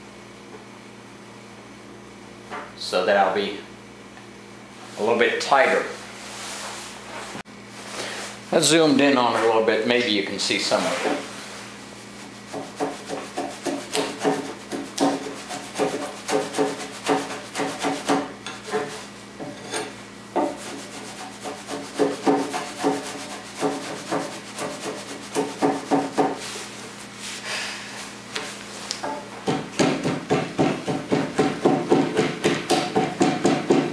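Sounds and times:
metal tool scraping wood: 12.5 - 26.4.

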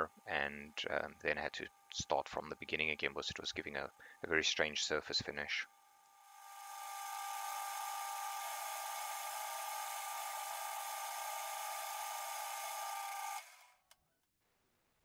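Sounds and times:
metal lathe whining: 6.4 - 13.6.

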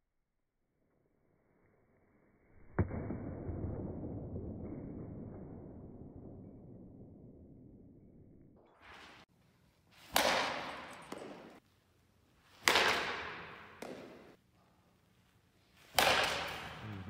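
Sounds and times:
bat cracking a ball: 10.1 - 11.6, 12.5 - 14.4, 15.8 - 16.9.

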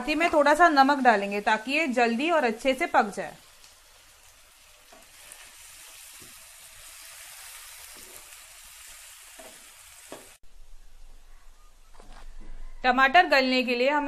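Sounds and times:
vegetables sizzling in oil: 0.0 - 10.4
spatula stirring in pan: 4.8 - 10.4.

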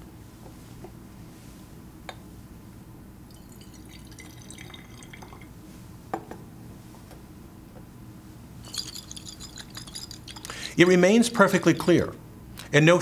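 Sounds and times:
water splashing in a glass flask: 3.3 - 5.5.

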